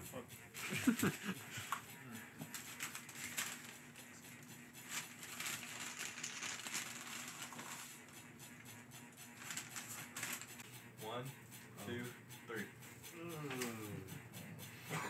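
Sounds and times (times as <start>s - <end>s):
paper bag rustling: 5.0s - 7.9s.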